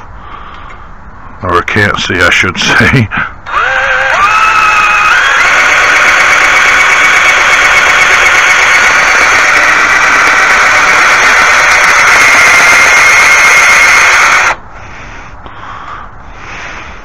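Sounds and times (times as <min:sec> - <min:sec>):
power tool whining: 0:03.4 - 0:14.6.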